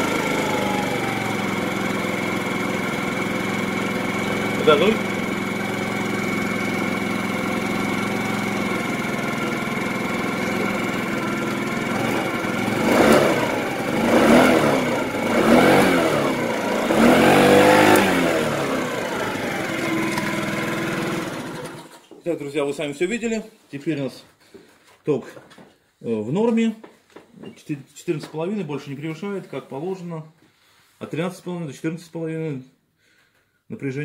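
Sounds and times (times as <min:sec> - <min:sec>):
scooter engine idling and revving: 0:00.0 - 0:22.0.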